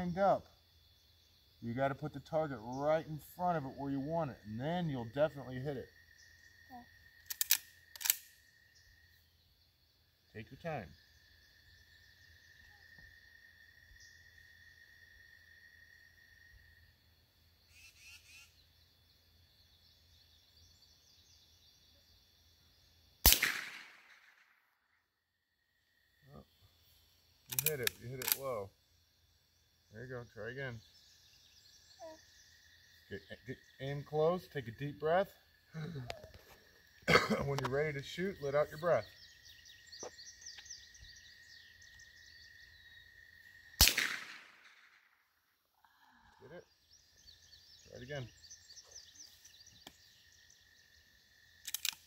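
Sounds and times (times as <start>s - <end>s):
rifle shot with echo: 23.2s - 24.5s, 43.8s - 45.0s
birds chirping faintly: 25.6s - 43.8s, 45.3s - 51.6s.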